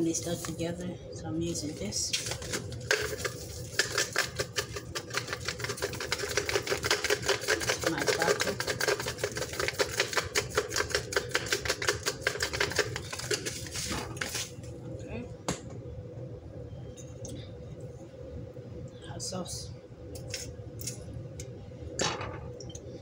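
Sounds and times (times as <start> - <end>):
plastic bottle shaken and tapped: 2.2 - 14.5.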